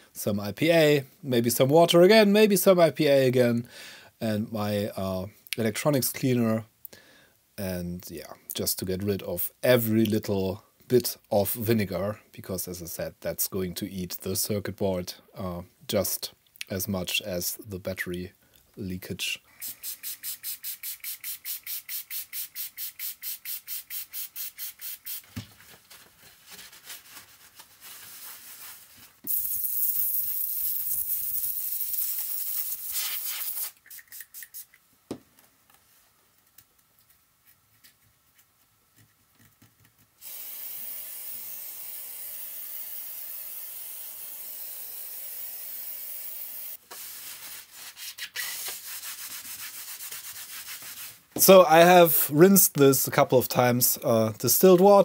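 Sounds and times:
soft steady hiss: 0:00.0 - 0:55.0
aerosol spray hissing: 0:19.6 - 0:25.3, 0:29.3 - 0:34.7, 0:40.2 - 0:47.2.

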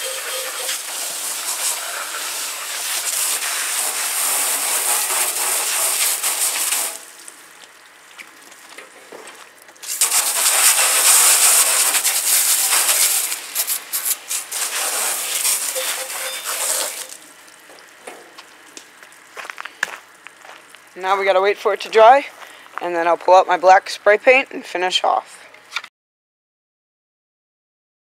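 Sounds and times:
water spraying on metal: 0:00.0 - 0:22.0.

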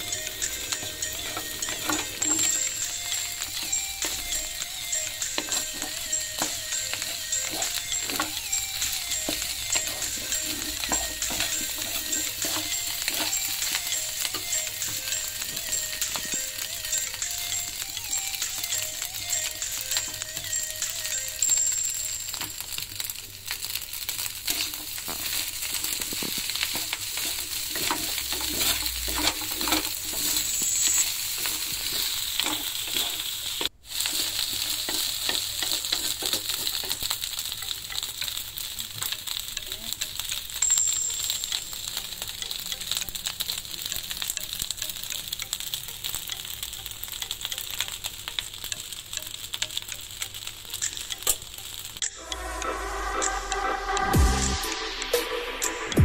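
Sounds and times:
spatula scraping and tapping pan: 0:00.0 - 0:52.1
rice sizzling in a wok: 0:00.0 - 0:56.0.

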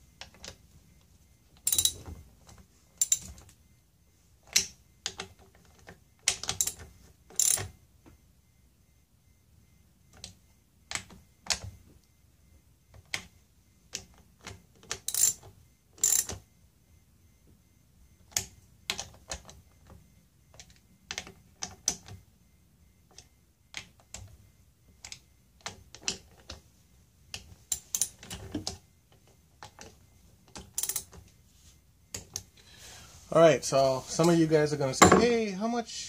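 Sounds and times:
metal tools clinking: 0:01.6 - 0:02.0.

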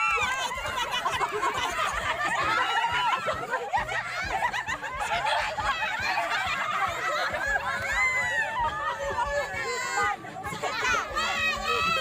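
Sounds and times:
crowd laughing and calling out: 0:00.0 - 0:12.0.

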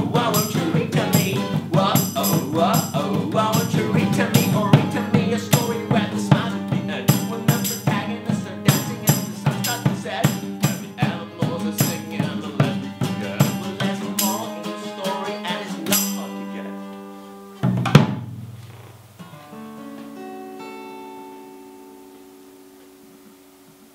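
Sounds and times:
acoustic guitars strumming: 0:00.0 - 0:23.9
single picked guitar notes: 0:15.8 - 0:23.9.

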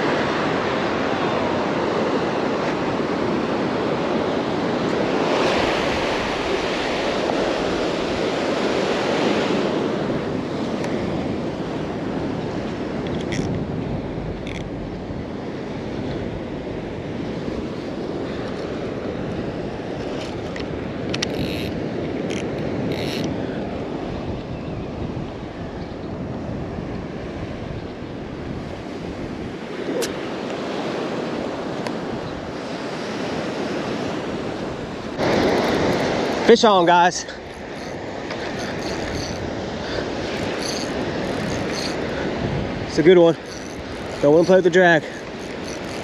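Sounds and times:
wind rumbling on microphone: 0:00.0 - 0:46.0
surf breaking on beach: 0:29.0 - 0:38.8, 0:39.4 - 0:46.0.

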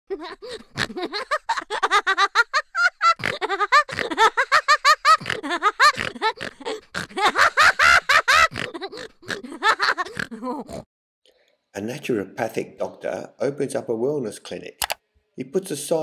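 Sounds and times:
loud laughter: 0:00.1 - 0:10.8.

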